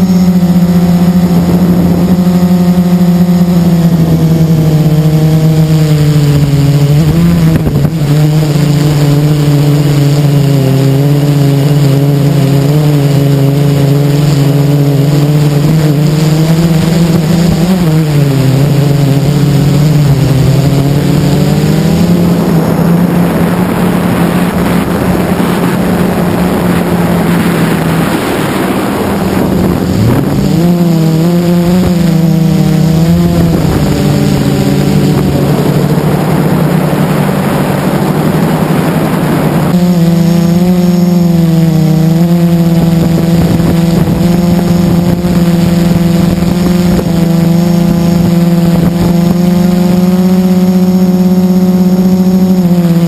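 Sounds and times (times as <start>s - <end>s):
loud rushing noise: 0.0s - 49.4s
quadcopter motors whining: 0.0s - 53.0s.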